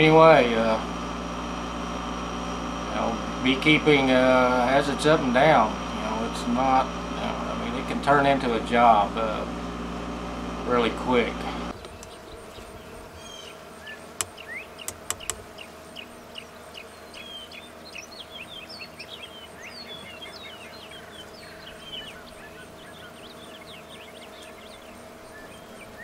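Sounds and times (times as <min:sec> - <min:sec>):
steady hum: 0:00.0 - 0:26.0
small birds chirping: 0:11.7 - 0:26.0
sharp clicks: 0:14.2 - 0:15.4.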